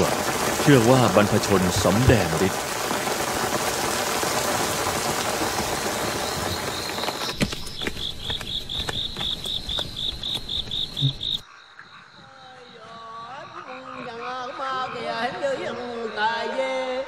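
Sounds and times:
heavy rain hissing: 0.0 - 8.9
water dripping: 0.0 - 11.4
insect chirping in rapid pulses: 0.0 - 16.8
frogs croaking: 0.0 - 17.0.

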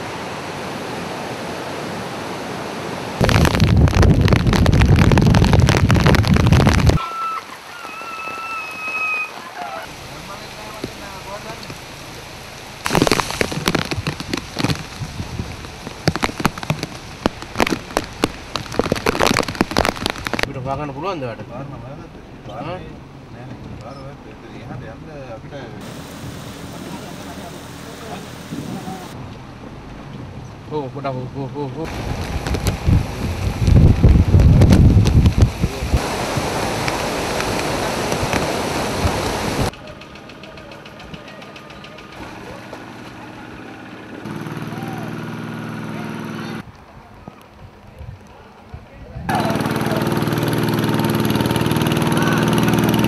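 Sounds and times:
heavy rain: 0.0 - 20.5, 25.8 - 30.1, 31.8 - 39.8
floodwater torrent rushing: 0.0 - 40.0, 49.3 - 53.0
wind buffeting microphone: 3.2 - 7.0, 13.4 - 20.5, 31.9 - 39.7
raindrops striking nearby: 3.2 - 20.6, 31.8 - 43.2.

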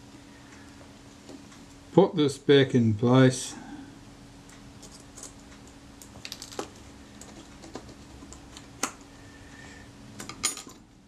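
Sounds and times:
faint steady hum: 0.0 - 11.0
small metal parts clicking: 4.8 - 5.4.

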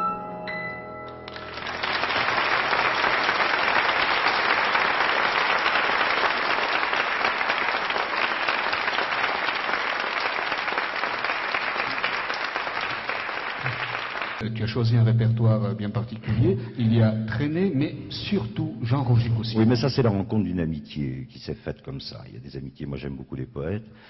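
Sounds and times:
audience applauding: 1.3 - 14.4.

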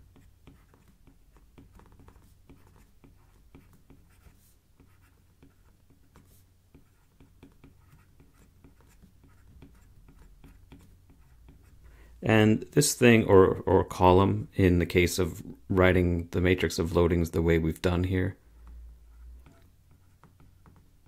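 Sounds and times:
stylus tapping on tablet screen: 19.4 - 21.0.

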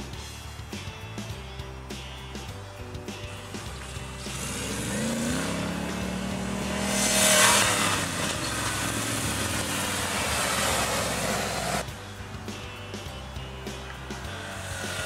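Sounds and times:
buggy engine revving: 0.0 - 15.0
tyres spinning in sand: 3.5 - 11.8.

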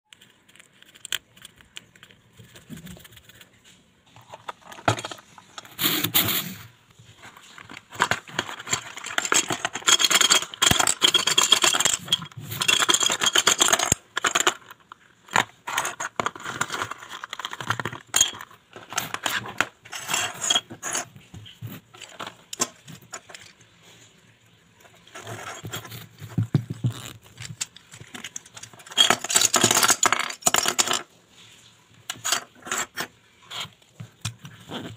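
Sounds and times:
plastic sharpeners clattering on wood: 4.1 - 6.6, 7.2 - 23.6, 25.0 - 31.1, 32.1 - 34.8.

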